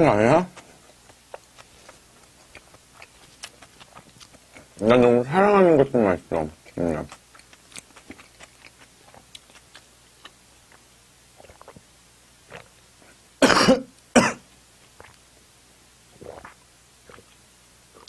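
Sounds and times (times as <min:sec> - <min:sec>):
mouth and swallowing clicks: 0:00.5 - 0:04.9, 0:06.6 - 0:11.9, 0:12.5 - 0:13.2, 0:14.8 - 0:15.2, 0:16.2 - 0:17.4
man coughing: 0:13.4 - 0:14.4.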